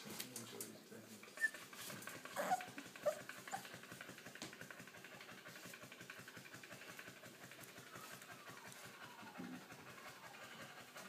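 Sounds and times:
puppies panting: 0.1s - 11.0s
puppies whimpering and yipping: 1.4s - 3.8s.

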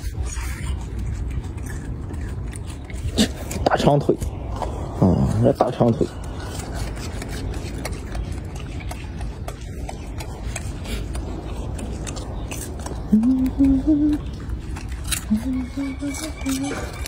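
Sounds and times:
monkeys crunching leaves: 0.0s - 17.0s.

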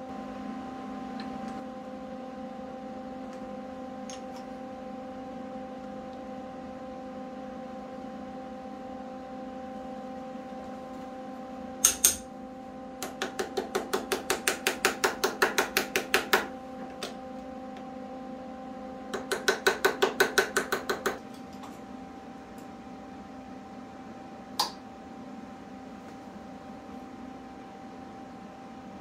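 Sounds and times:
hammer tapping on steel pipe: 11.8s - 12.2s.

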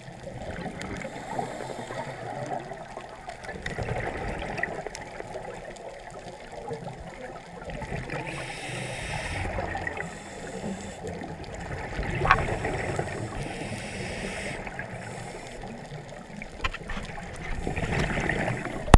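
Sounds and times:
muffled underwater swishing: 0.0s - 18.9s
hiss: 1.0s - 2.3s, 8.2s - 11.2s, 12.4s - 15.8s.

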